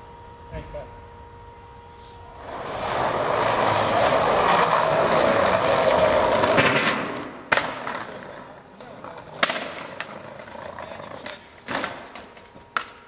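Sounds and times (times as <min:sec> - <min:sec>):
skateboard wheels rolling on bricks: 0:02.3 - 0:13.0
sharp skateboard clack: 0:03.4 - 0:13.0.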